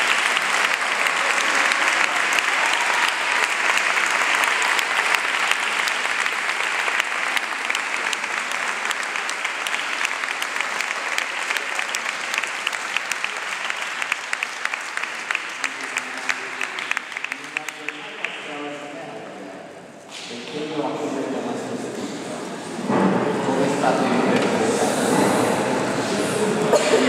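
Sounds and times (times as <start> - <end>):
audience applauding: 0.0 - 18.9.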